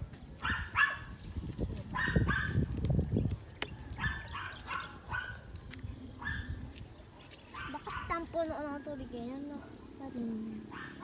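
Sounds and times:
dog barking: 0.4 - 1.1, 1.9 - 2.6, 4.0 - 5.4, 6.2 - 6.5, 7.5 - 8.3, 10.7 - 11.0.

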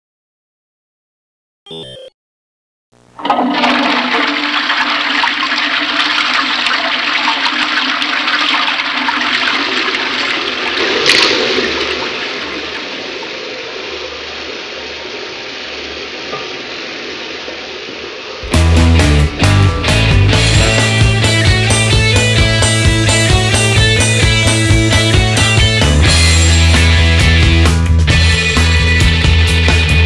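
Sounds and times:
toilet flushing: 3.2 - 27.2
loud rock music: 18.4 - 30.0.

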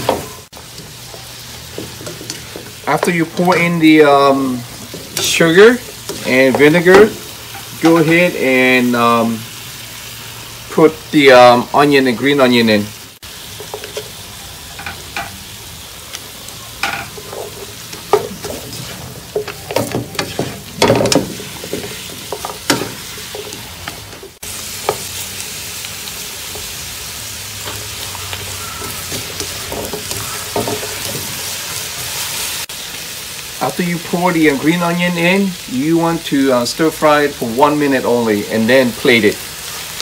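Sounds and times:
spatula scraping and knocking pan: 0.0 - 8.3, 16.8 - 25.2, 28.7 - 31.5
chicken wings sizzling in a wok: 0.0 - 40.0.

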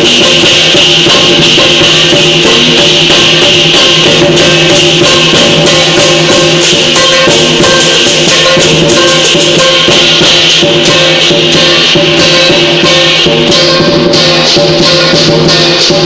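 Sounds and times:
cymbals clashing: 0.0 - 16.0
lion dance music: 0.0 - 16.0.

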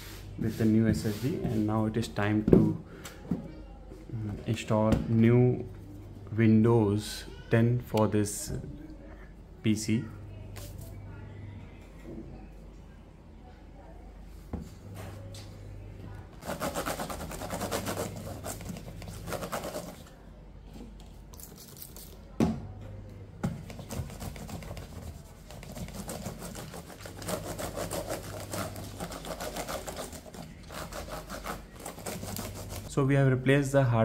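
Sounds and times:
tissue rubbing laptop: 16.4 - 20.0, 23.8 - 32.9.

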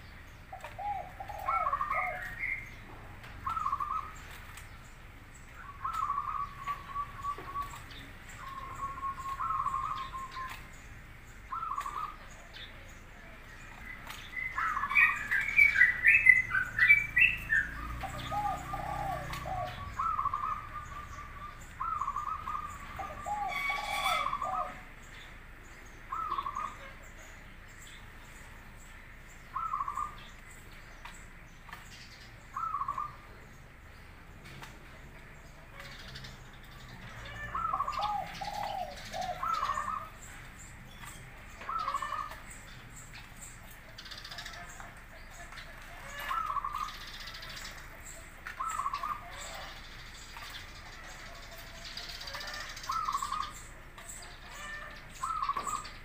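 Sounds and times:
high bird chirping: 0.0 - 12.3, 13.8 - 25.4, 29.4 - 33.4, 35.8 - 56.0
dove cooing: 0.5 - 2.8, 3.4 - 4.3, 5.6 - 10.6, 11.5 - 12.3, 14.5 - 25.0, 26.1 - 27.0, 29.6 - 30.2, 32.6 - 33.2, 37.2 - 40.3, 41.6 - 42.5, 45.8 - 49.8, 50.4 - 53.9, 54.5 - 56.0.

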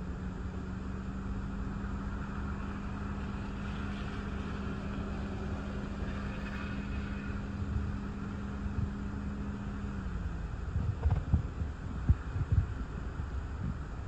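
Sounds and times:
car hum: 0.0 - 14.0
wind buffeting microphone: 4.3 - 14.0.

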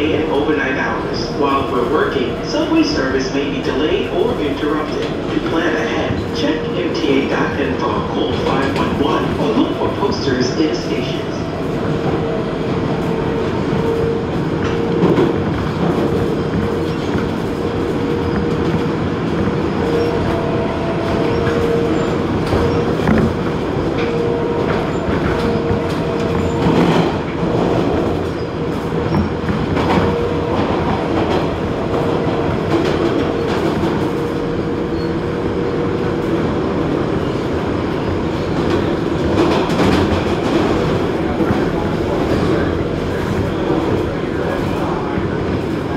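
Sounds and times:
subway train wheels rumbling on rail: 0.0 - 45.9
loud wheel clacks: 37.6 - 45.9.

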